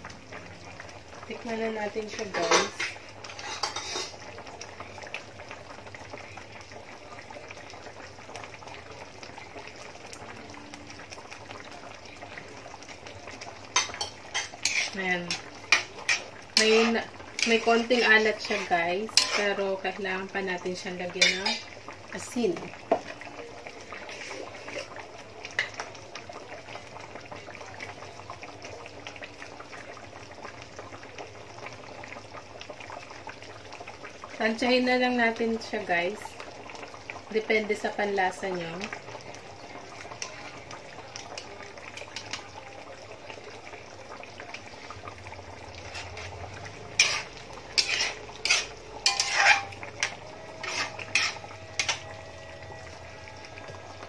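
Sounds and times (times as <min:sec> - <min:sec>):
sauce bubbling in a wok: 0:00.0 - 0:54.0
spoon clinking against pan: 0:02.4 - 0:04.2, 0:13.8 - 0:17.6, 0:21.2 - 0:21.7, 0:47.0 - 0:52.1.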